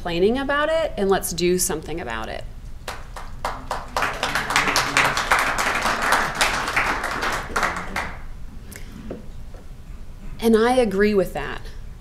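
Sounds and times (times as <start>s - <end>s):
audience applauding: 2.9s - 8.2s.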